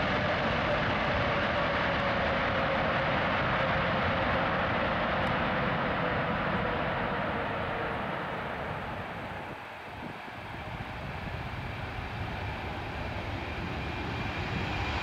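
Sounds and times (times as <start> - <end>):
jet engine roar with whine: 0.0 - 15.0.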